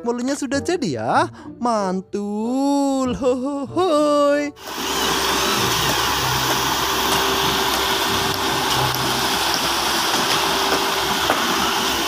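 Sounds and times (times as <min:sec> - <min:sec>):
truck engine hum: 0:04.6 - 0:12.0
wet concrete pouring down chute: 0:04.8 - 0:12.0.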